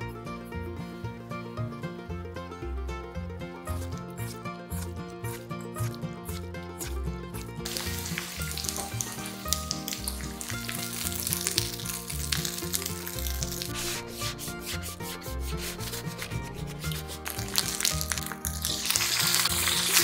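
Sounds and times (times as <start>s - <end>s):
chicken sizzling in frying pan: 7.6s - 14.0s, 16.8s - 20.0s
paper towel scraping pan: 7.6s - 20.0s.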